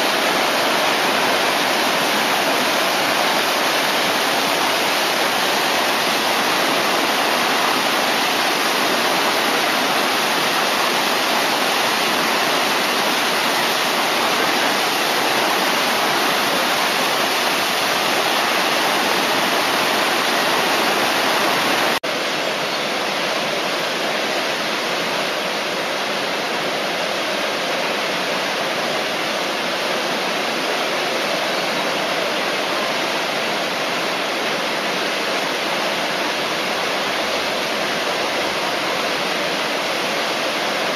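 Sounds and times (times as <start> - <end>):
whitewater rushing: 0.0 - 40.9.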